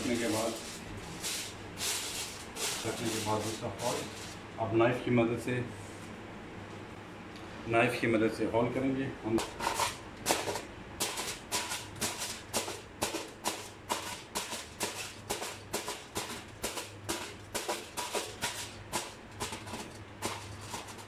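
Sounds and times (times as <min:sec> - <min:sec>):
knife piercing aluminium foil: 0:00.0 - 0:04.4, 0:09.4 - 0:21.0.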